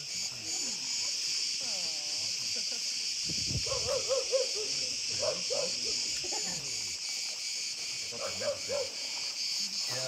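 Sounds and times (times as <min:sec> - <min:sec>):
shrill insect chorus: 0:00.0 - 0:10.0
dogs yelping: 0:03.7 - 0:05.8, 0:08.2 - 0:08.9.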